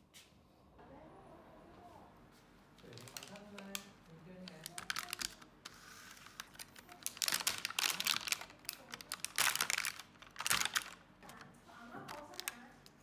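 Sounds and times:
plastic carton crackling: 2.9s - 3.8s, 4.4s - 13.0s.

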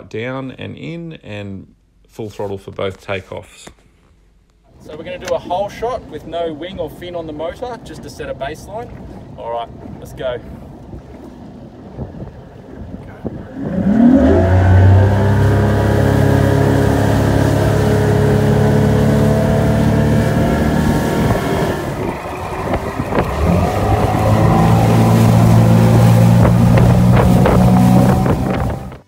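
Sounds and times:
outboard motor at full throttle: 8.9s - 29.0s.

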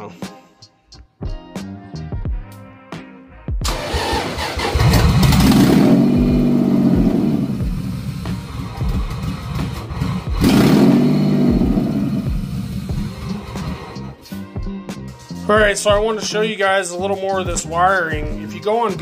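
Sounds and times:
car engine starting and revving: 3.6s - 14.2s.

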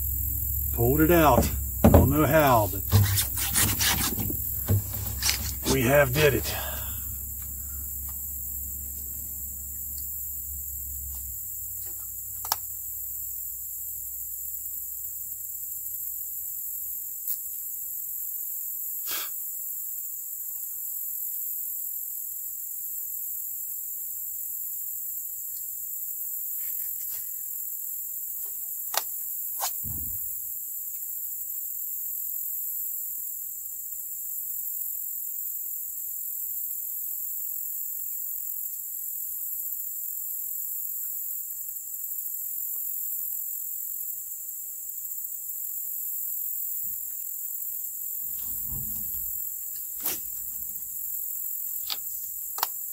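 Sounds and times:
low thump: 0.0s - 6.9s, 29.8s - 30.3s
insects droning: 0.0s - 52.9s
sharp clicks and knocks: 0.8s - 6.5s.

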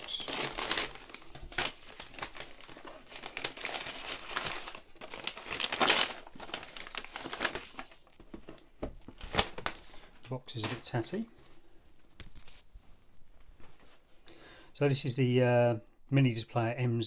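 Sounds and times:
paper wrapping crinkling: 0.0s - 12.7s.

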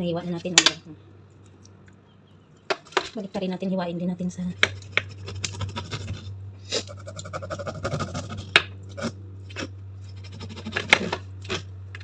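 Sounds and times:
low hum: 0.0s - 12.0s
knife scraping fish skin: 4.6s - 12.0s.

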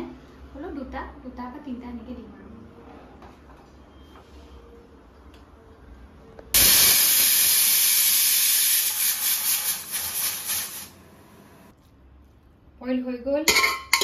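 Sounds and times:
pressure cooker steam hissing: 6.6s - 11.0s.

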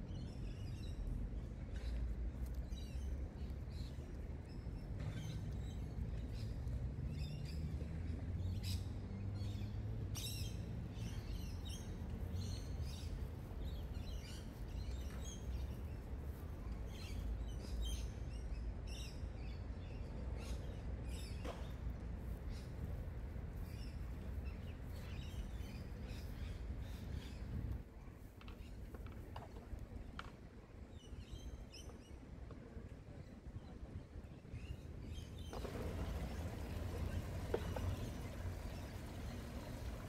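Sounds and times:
birds chirping: 34.6s - 40.0s.

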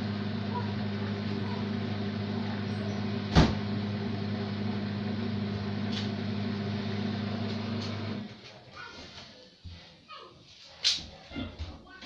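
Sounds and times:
washing machine humming: 0.0s - 8.4s.

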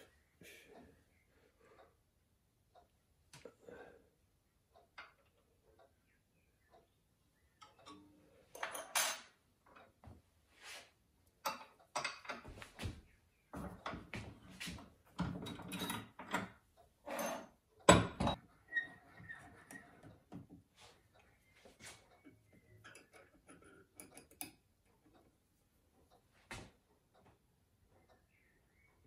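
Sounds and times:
metal scraping and clinking: 15.3s - 17.6s.

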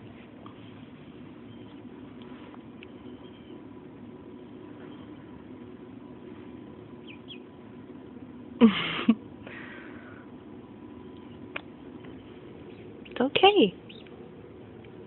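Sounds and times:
duckling peeping faintly: 1.2s - 5.6s, 6.2s - 7.7s, 10.9s - 15.0s.

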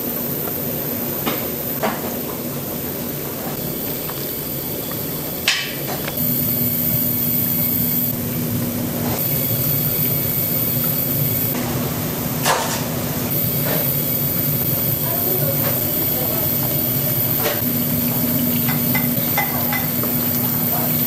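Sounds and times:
steady kitchen hum: 0.0s - 21.0s.

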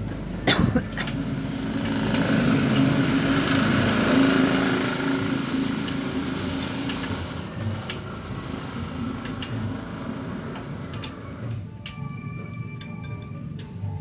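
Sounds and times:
small engine running: 1.0s - 11.6s.

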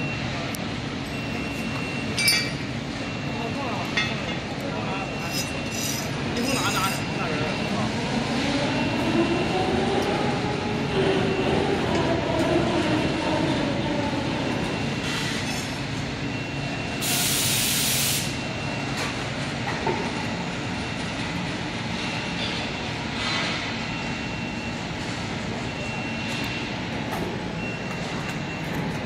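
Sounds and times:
workshop machinery din: 0.0s - 10.5s.

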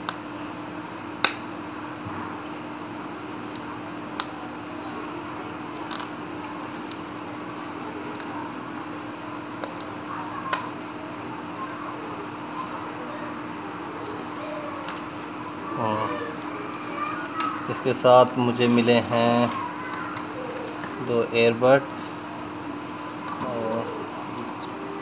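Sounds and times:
steady low hum: 0.0s - 25.0s
packaging clicks and crinkling: 5.6s - 8.4s.

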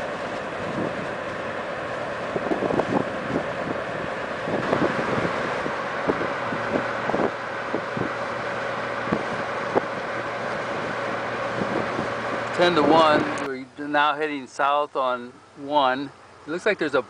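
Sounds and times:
road and wind noise inside car: 0.0s - 17.0s
wind thumps on microphone: 0.1s - 1.4s, 2.2s - 13.5s.

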